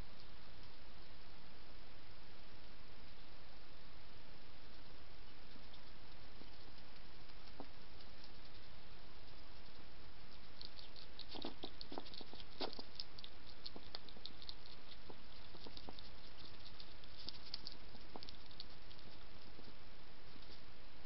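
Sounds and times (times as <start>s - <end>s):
steady background hiss: 0.0s - 21.0s
hedgehog crunching biscuits: 5.5s - 19.8s.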